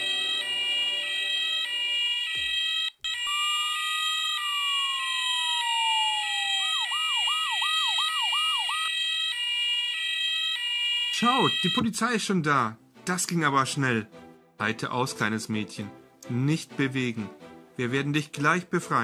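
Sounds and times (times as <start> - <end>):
siren gliding and yelping: 0.0 - 11.8
two-tone siren: 0.0 - 11.9.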